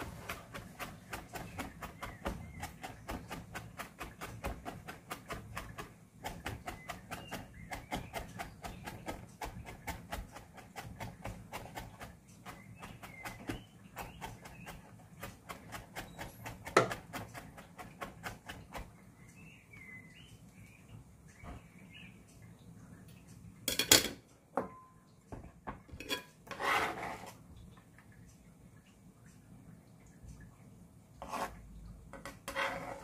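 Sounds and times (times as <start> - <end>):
knife chopping on cutting board: 0.1 - 18.8
kitchenware clattering: 23.7 - 25.0, 25.7 - 26.6.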